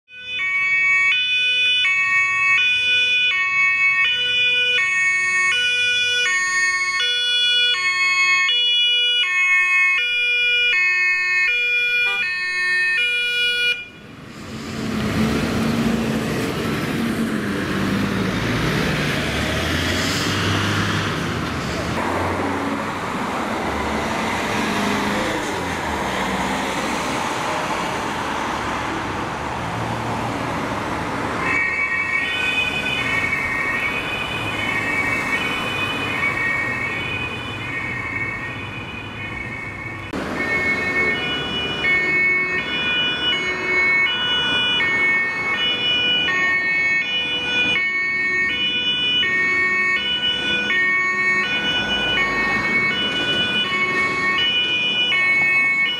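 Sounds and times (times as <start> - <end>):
second two-tone siren: 0.1 - 14.1, 31.4 - 55.9
two-tone emergency siren: 0.1 - 14.2, 31.4 - 55.9
road traffic: 0.1 - 55.9
vehicle passing: 14.1 - 31.4, 49.4 - 55.9.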